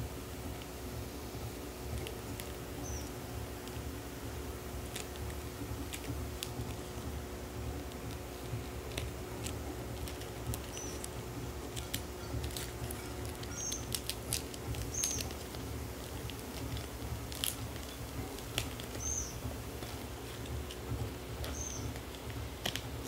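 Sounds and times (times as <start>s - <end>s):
steady low hum: 0.0s - 23.0s
blade cutting plastic wrap: 4.8s - 23.0s.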